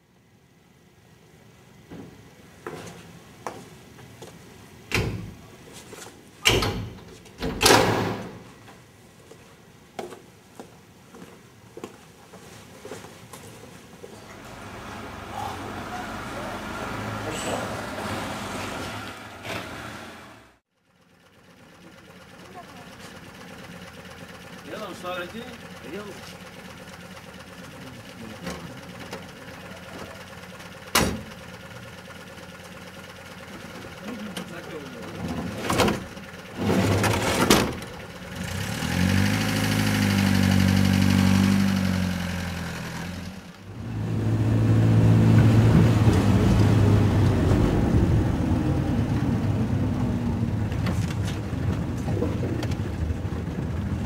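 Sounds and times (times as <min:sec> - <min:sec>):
doors opening and shutting: 0:04.9 - 0:05.5, 0:06.4 - 0:08.8, 0:14.2 - 0:20.6, 0:30.9 - 0:31.4, 0:35.1 - 0:38.0
door banging: 0:06.4 - 0:08.5
engine idling: 0:14.2 - 0:18.0, 0:20.2 - 0:43.9, 0:46.4 - 0:54.0.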